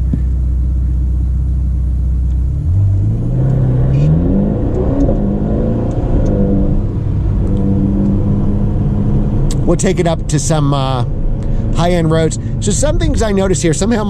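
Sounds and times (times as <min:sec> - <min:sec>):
car engine idling and accelerating: 0:00.0 - 0:14.0.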